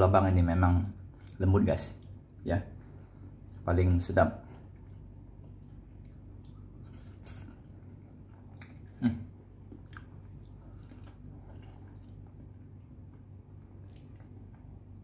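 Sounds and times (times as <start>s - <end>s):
man chewing: 4.5s - 15.0s.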